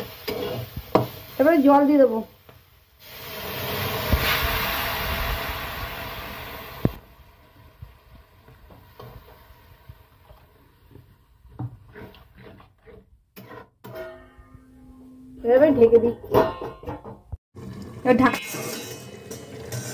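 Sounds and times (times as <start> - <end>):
metal spatula scraping pan: 0.0 - 1.1, 11.5 - 17.2, 18.1 - 19.9
water hissing in hot pan: 0.0 - 11.3, 17.6 - 19.9.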